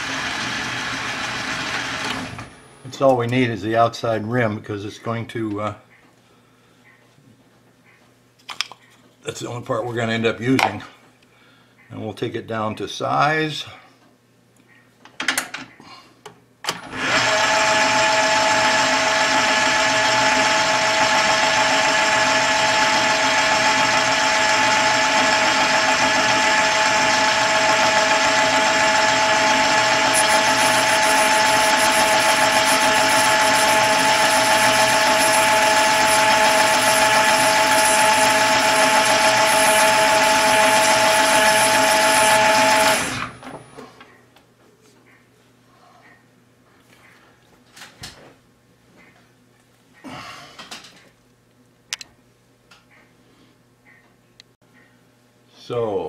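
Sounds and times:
metal lathe whining: 16.8 - 43.4.

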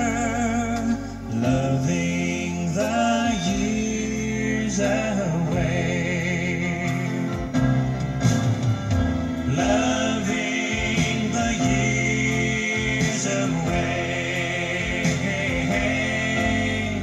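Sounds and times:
love ballad playing: 0.0 - 17.0.

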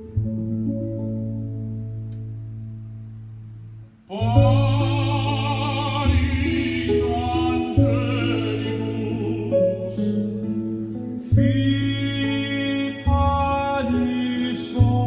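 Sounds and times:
bass notes: 0.0 - 15.0
singing voice with vibrato: 4.1 - 10.4, 11.2 - 15.0.

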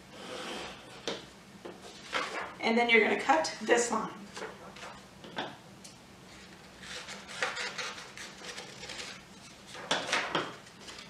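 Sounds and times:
paper rustling: 1.8 - 2.6, 6.3 - 11.0.

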